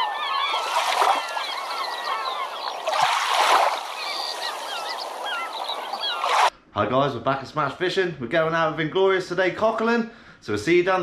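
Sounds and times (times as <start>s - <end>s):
flock of birds calling: 0.0s - 6.5s
rushing water: 0.0s - 6.5s.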